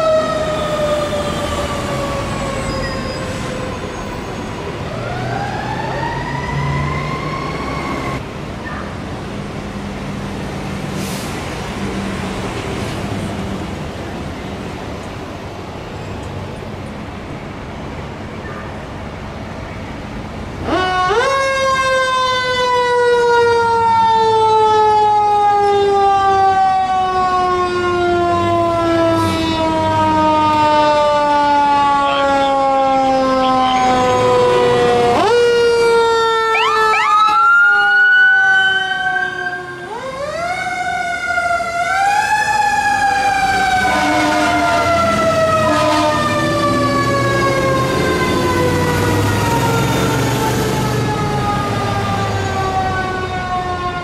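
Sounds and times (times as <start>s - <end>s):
fire truck siren winding: 29.0s - 54.0s.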